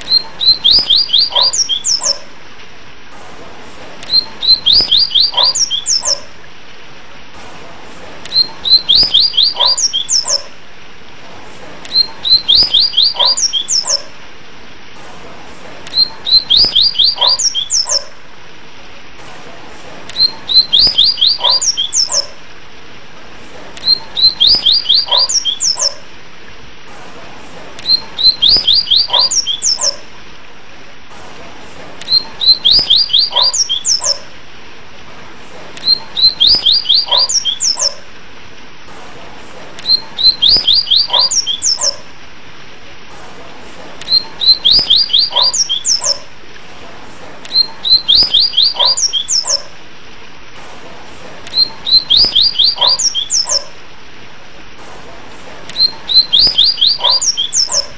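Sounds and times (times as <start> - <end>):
bird whistling song: 0.0 - 2.3, 4.0 - 6.3, 8.3 - 10.5, 11.9 - 14.1, 15.9 - 18.1, 20.1 - 22.4, 23.8 - 26.0, 27.8 - 30.0, 32.0 - 34.3, 35.8 - 38.0, 39.8 - 42.0, 44.0 - 46.3, 47.5 - 49.7, 51.5 - 53.8, 55.7 - 57.9
faint steady hiss: 0.0 - 57.9.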